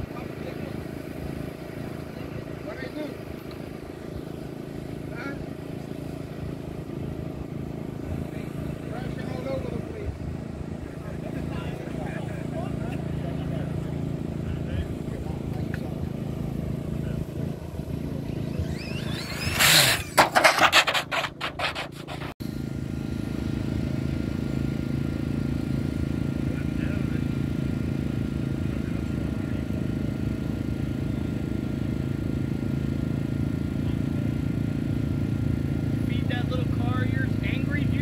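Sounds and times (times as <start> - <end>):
steady low hum: 0.0 - 38.0
rc car motor whine: 16.9 - 22.3
loud rapid rattling burst: 19.1 - 22.4.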